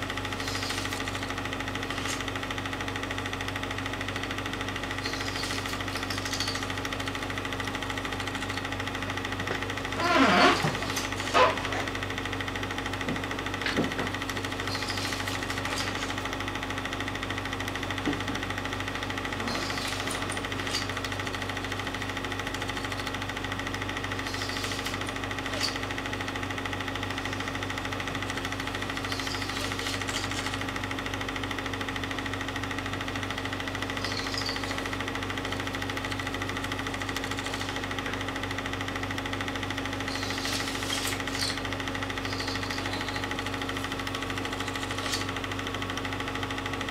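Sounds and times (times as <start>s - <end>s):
film projector whirring: 0.0s - 46.9s
constant hum: 3.8s - 16.9s, 17.9s - 31.2s, 33.2s - 38.3s, 39.6s - 45.7s.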